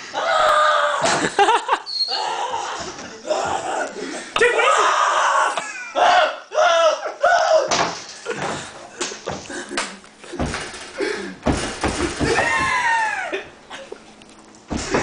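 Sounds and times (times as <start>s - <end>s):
people shrieking and laughing: 0.0s - 7.7s, 12.2s - 13.5s
loud thumps and bangs: 11.4s - 12.8s.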